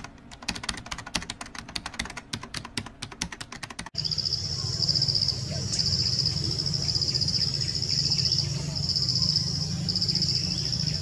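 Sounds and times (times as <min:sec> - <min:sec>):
keyboard typing clicks: 0:00.0 - 0:04.0
high insect trill: 0:04.0 - 0:11.0.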